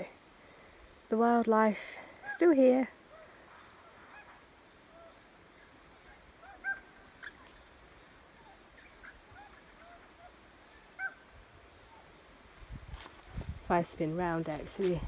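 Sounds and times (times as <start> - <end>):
birds calling and whistling: 8.4 - 11.3.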